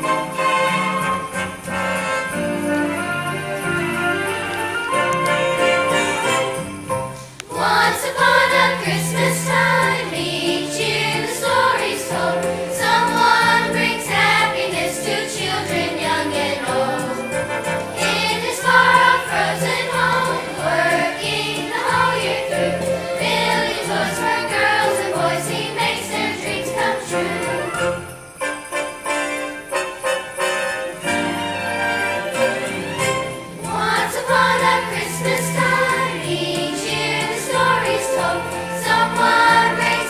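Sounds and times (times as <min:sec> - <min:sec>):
instrumental accompaniment: 0:00.0 - 0:40.0
children's choir singing: 0:07.4 - 0:28.1, 0:32.0 - 0:40.0.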